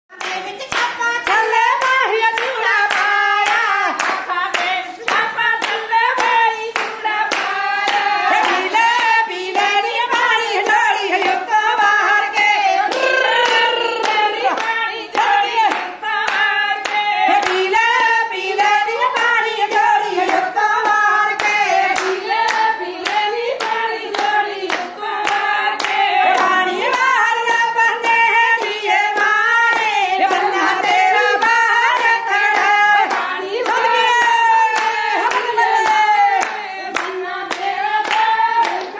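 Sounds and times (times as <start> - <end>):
rhythmic hand clapping: 0.1 - 38.9.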